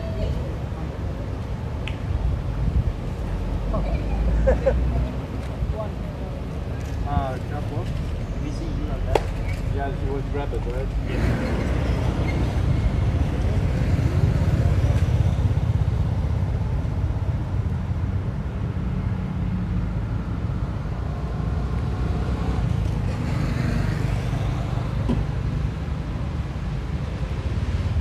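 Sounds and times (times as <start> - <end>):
road traffic rumble: 0.0 - 28.0
vehicle passing by: 18.8 - 26.0.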